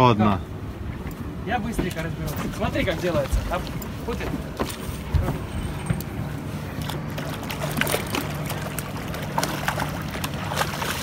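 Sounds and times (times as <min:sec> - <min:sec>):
boat engine idling: 0:00.5 - 0:11.0
water splashing: 0:06.2 - 0:11.0.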